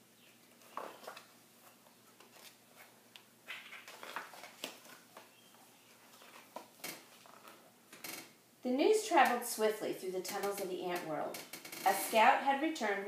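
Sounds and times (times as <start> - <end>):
book pages turning: 0.4 - 7.7.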